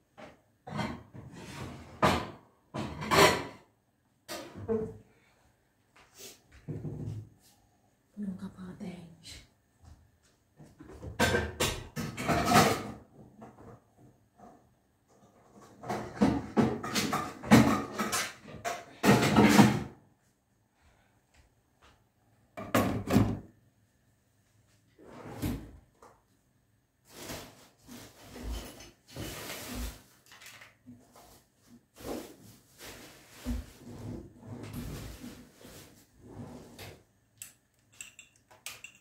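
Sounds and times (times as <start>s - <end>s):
pots and utensils clattering: 0.3s - 3.7s, 11.0s - 13.8s, 15.2s - 20.0s, 37.9s - 39.0s.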